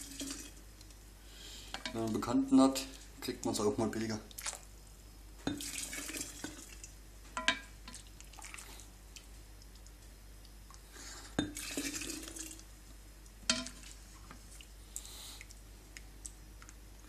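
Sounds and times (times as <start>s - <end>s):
liquid pouring splash: 0.0s - 0.6s, 5.5s - 6.9s, 11.5s - 12.6s
ladle clinking: 7.4s - 8.0s, 13.5s - 13.9s.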